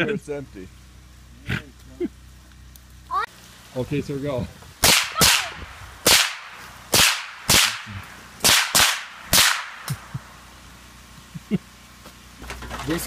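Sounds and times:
gunshots: 4.8 - 10.0.

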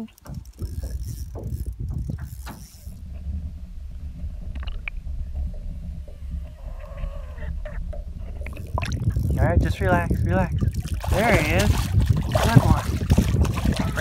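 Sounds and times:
fishing reel clicking: 0.0 - 3.0
muffled underwater rumble: 0.0 - 14.0.

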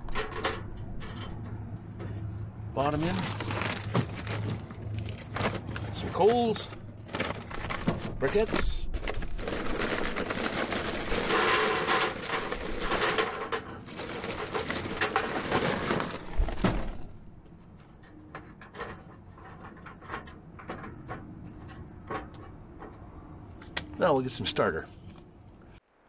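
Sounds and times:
charcoal poured into metal grill: 9.6 - 16.5.

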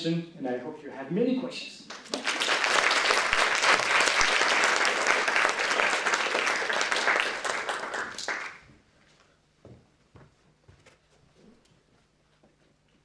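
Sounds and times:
audience applauding: 1.9 - 8.7.

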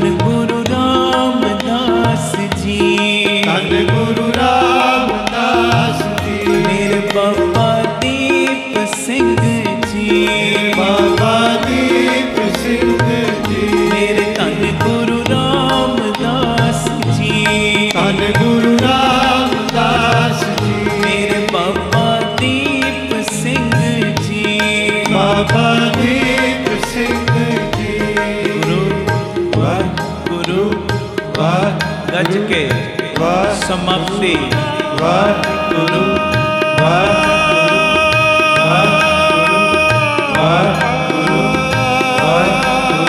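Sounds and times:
harmonium held notes: 0.0 - 43.0
person singing: 0.0 - 43.0
tabla drumming: 0.0 - 43.0.

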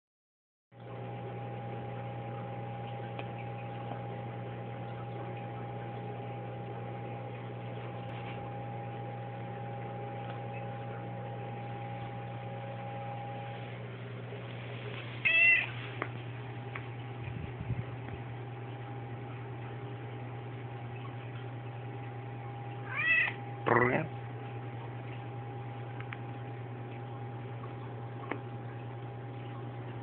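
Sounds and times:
low electrical hum: 0.8 - 30.0
cat meowing: 15.2 - 15.8, 22.8 - 23.4.

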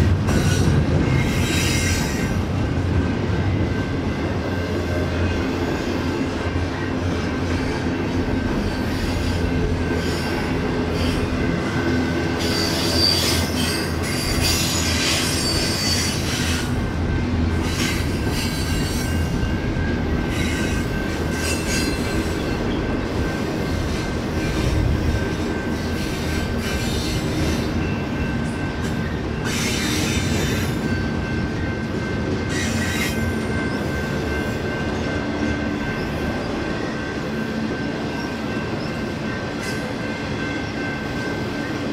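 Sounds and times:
train wheels rumbling on rail: 0.0 - 41.9
high wheel squeal: 12.2 - 16.7.

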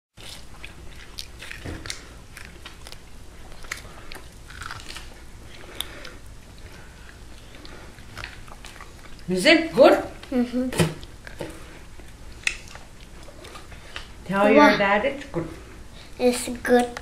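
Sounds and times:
person chewing meat: 0.2 - 9.3, 11.0 - 14.2.

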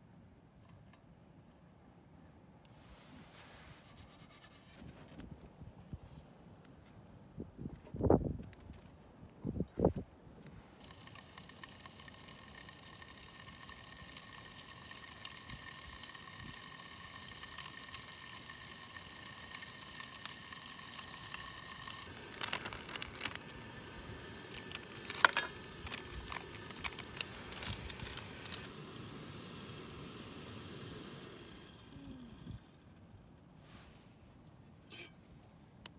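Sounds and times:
meat sizzling in a pan: 10.8 - 22.4.

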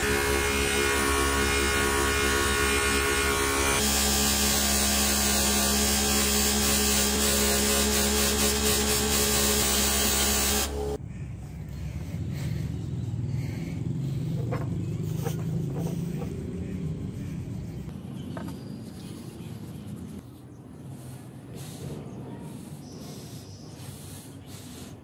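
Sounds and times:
small electric motor buzzing: 0.0 - 11.0.

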